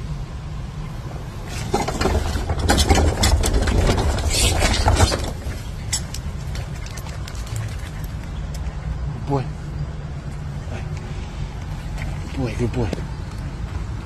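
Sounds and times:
wheeled bin rolling on tarmac: 1.2 - 6.0.

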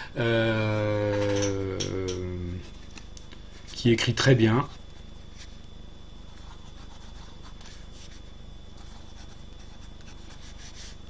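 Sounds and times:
steady low hum: 0.0 - 11.0
pen scratching on paper: 6.4 - 11.0.

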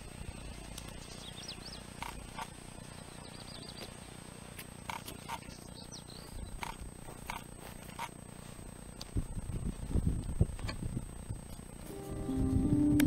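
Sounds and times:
small birds chirping: 0.0 - 7.6.

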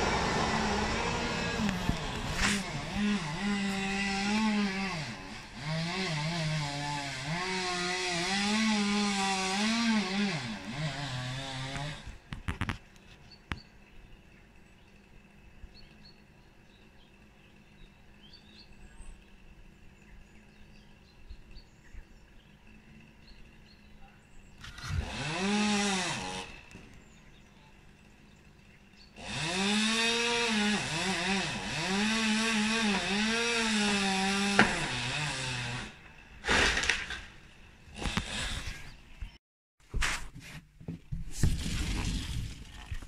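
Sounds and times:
chainsaw revving: 0.0 - 12.2, 24.6 - 27.4, 29.0 - 39.0.

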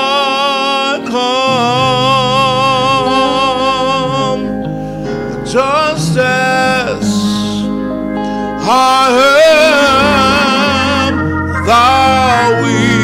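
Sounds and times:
person singing with vibrato: 0.0 - 13.0
sustained instrumental backing: 0.0 - 13.0.

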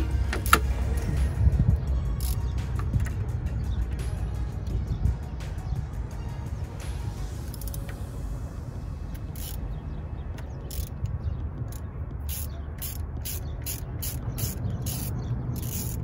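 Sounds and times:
socket ratchet clicking: 0.0 - 1.2, 2.1 - 4.8, 7.4 - 8.0, 9.1 - 16.0
steady low rumble: 0.0 - 16.0.

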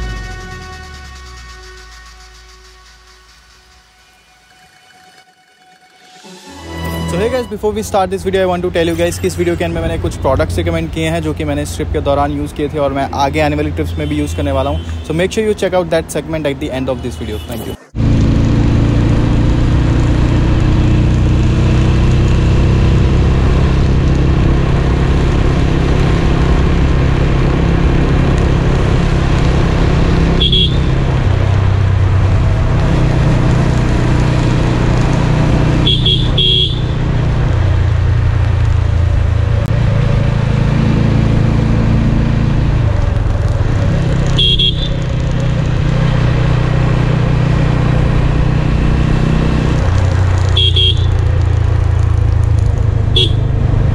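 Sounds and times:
horn beeping: 0.0 - 8.0, 30.2 - 31.2, 35.7 - 37.0, 44.4 - 45.1, 50.6 - 51.3, 53.2 - 53.5
motorcycle engine running: 18.0 - 53.9.

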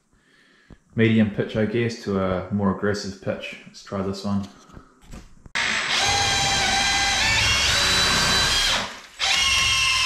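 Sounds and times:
drill motor whining: 5.6 - 10.0.

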